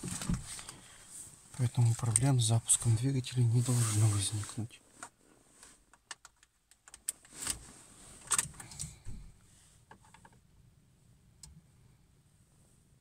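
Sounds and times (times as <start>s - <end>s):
faint steady hum: 7.6s - 13.0s.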